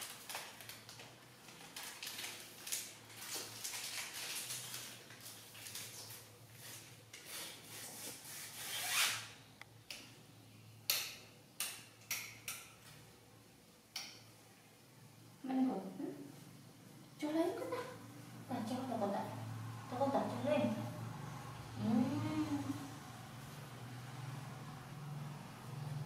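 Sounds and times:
broom sweeping tiled floor: 1.4s - 9.2s.

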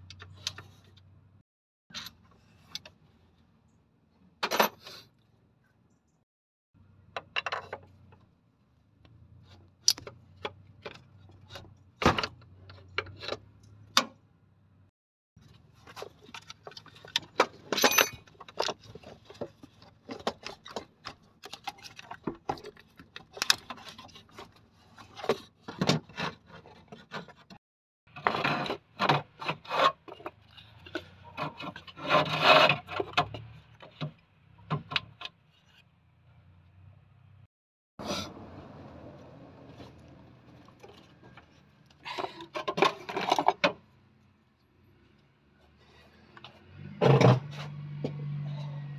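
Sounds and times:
metal parts clanking and scraping: 4.4s - 5.0s, 15.8s - 34.0s, 40.6s - 43.8s.

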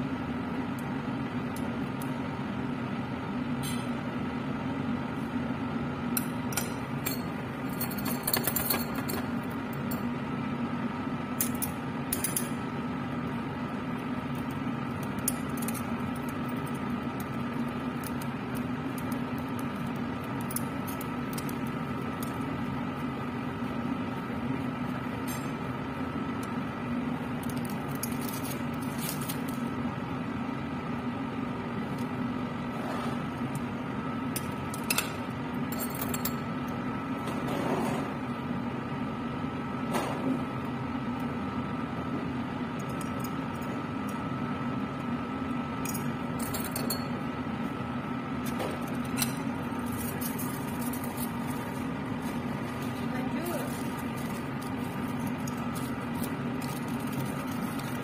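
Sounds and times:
blower humming: 36.4s - 58.0s.

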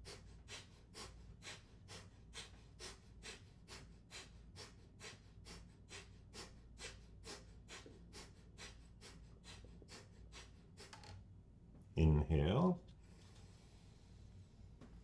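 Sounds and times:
rapid nasal exhalations: 0.0s - 11.0s.

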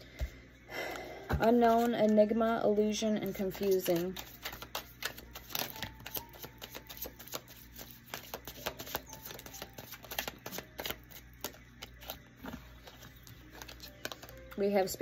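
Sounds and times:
cards being shuffled: 3.2s - 14.6s.

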